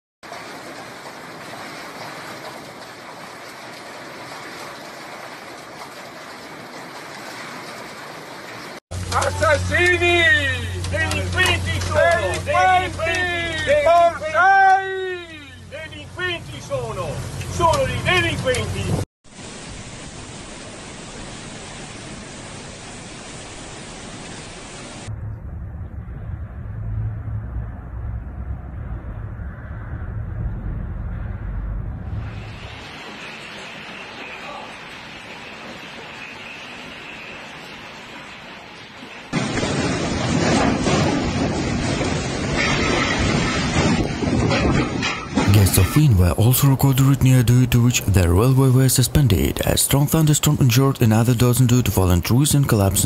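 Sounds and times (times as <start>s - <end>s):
torrential rain hissing: 0.2s - 25.1s, 31.4s - 45.1s
strong wind rumbling: 25.1s - 33.3s, 39.4s - 45.7s
heavy hail and rain: 32.4s - 46.3s.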